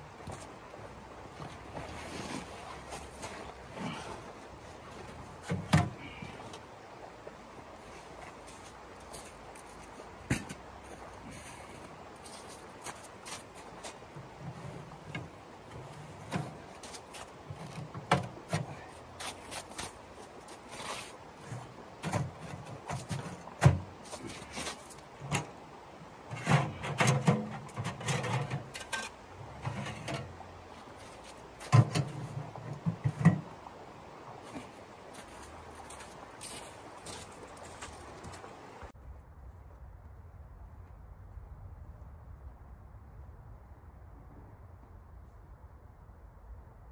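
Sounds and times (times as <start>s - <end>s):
metal stove clanking and scraping: 26.3s - 30.4s, 31.7s - 33.5s.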